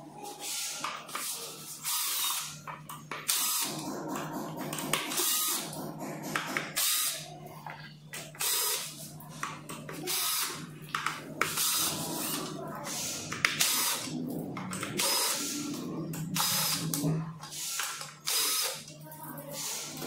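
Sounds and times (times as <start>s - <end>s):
cordless drill running in bursts: 1.8s - 2.4s, 3.3s - 3.7s, 5.2s - 5.6s, 8.4s - 8.8s, 17.6s - 18.7s.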